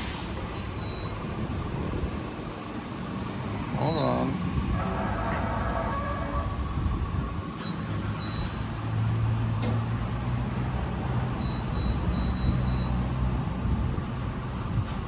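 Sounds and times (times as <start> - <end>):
faint high beeps: 0.6 - 1.2, 11.4 - 13.0.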